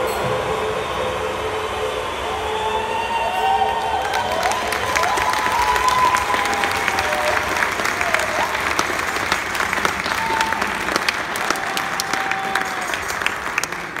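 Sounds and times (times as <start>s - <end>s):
high calls from crowd: 0.0s - 14.0s
audience clapping: 3.4s - 14.0s.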